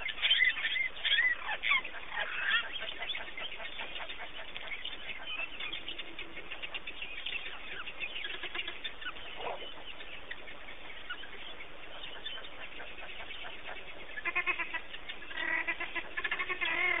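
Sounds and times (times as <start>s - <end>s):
wild dogs chirping: 0.0s - 17.0s.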